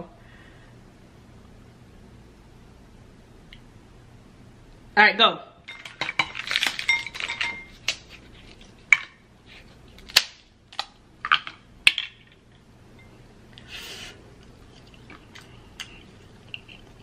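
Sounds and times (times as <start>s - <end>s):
crab shells cracking: 5.8s - 9.1s, 9.8s - 12.5s, 14.5s - 17.0s.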